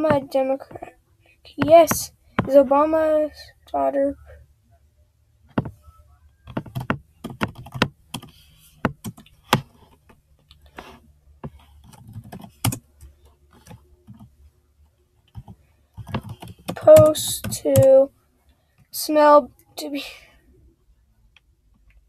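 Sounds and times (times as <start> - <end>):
keyboard typing clicks: 6.4 - 8.3, 15.3 - 18.0.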